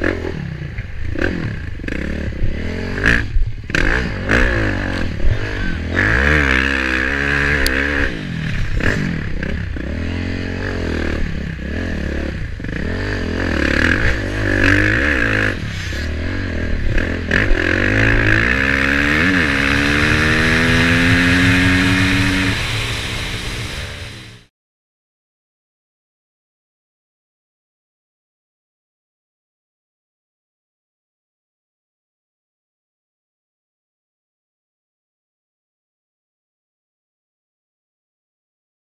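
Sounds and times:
dirt bike engine revving: 0.0 - 24.5.

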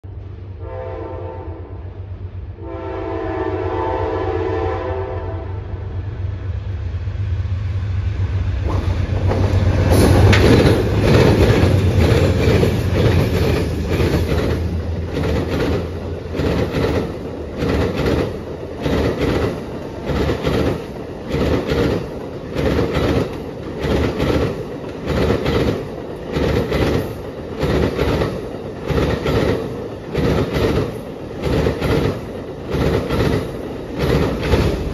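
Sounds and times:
train rumble: 0.0 - 34.9
locomotive horn: 0.6 - 1.9, 2.6 - 5.9
wheels clacking over rail joints: 8.6 - 34.9.

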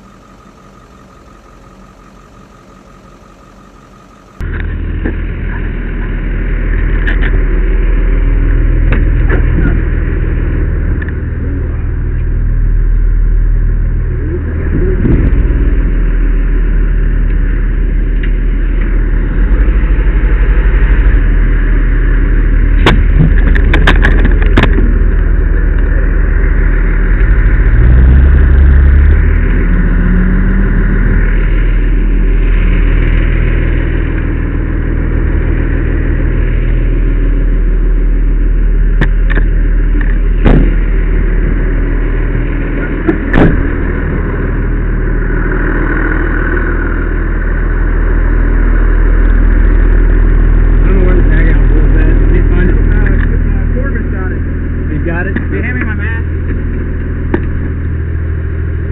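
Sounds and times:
fire engine engine running: 0.0 - 58.9
sharp knocks and clicks: 22.8 - 24.9.

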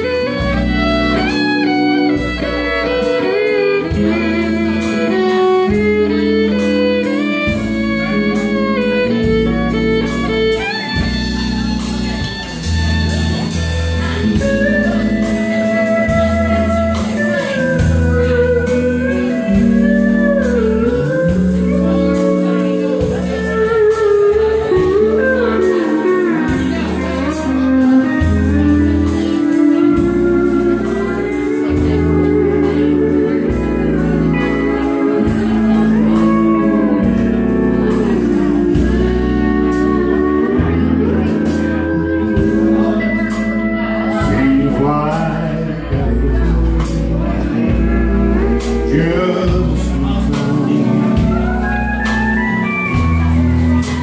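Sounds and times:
drums: 0.0 - 54.0
guitar: 0.0 - 54.0
pedal steel guitar: 0.0 - 54.0
person singing: 12.1 - 54.0.

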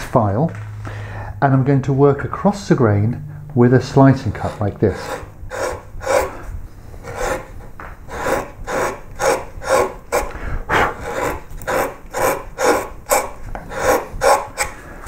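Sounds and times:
gouge scraping wood: 4.2 - 14.9.

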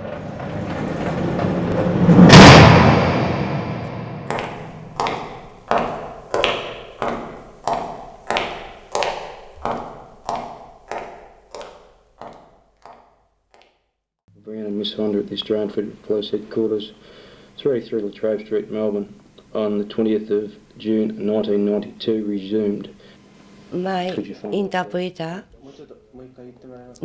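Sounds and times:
loud crash: 0.0 - 6.6.

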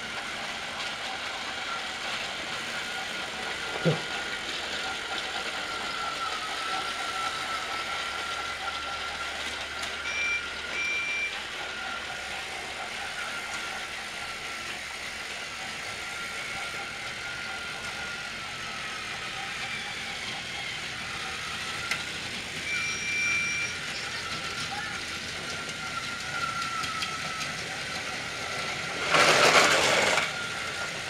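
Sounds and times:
toy train motor whine: 0.0 - 31.0
plastic wheels rattling on track: 23.6 - 31.0.

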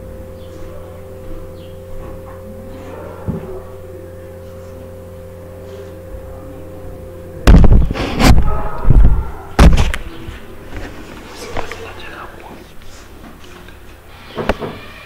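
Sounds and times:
low hum: 0.0 - 14.2.

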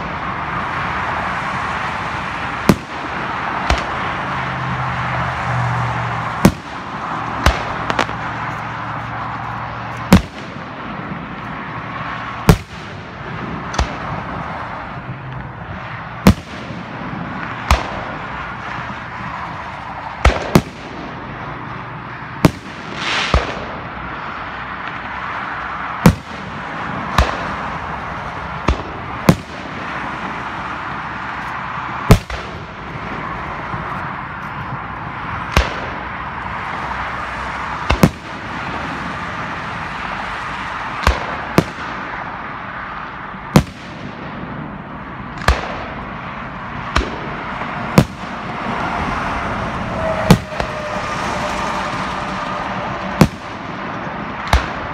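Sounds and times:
steady background din: 0.0 - 54.9
firework shells bursting: 6.3 - 10.8, 22.4 - 24.0.

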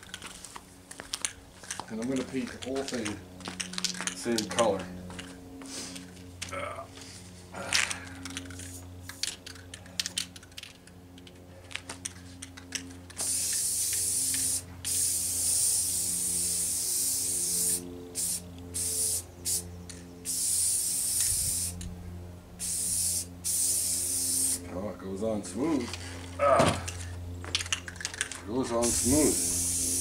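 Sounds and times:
spray can ball rattling: 8.3 - 11.3, 12.1 - 21.8, 22.6 - 24.6, 27.5 - 30.0
spray paint hissing: 13.1 - 21.9, 22.6 - 24.6, 28.8 - 30.0.

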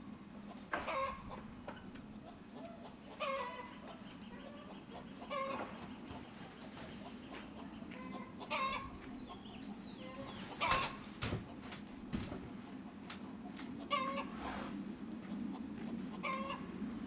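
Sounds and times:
chickens clucking: 0.2 - 17.0
chicken squawk: 0.8 - 5.9, 7.6 - 9.4, 13.8 - 14.4, 16.1 - 16.7.

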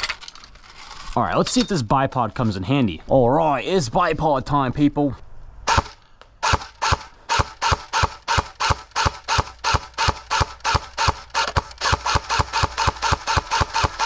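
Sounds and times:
airsoft gun rapid firing clacks: 5.7 - 14.0.

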